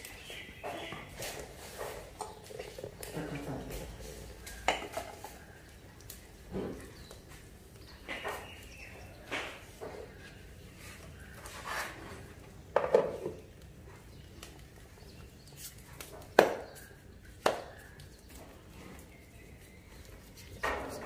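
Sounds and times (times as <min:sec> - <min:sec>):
hands patting dough: 0:14.4 - 0:18.6.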